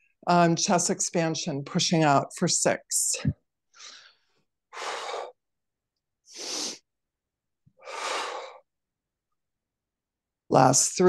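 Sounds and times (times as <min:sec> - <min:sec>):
woman breathing out hard: 0:07.8 - 0:08.6.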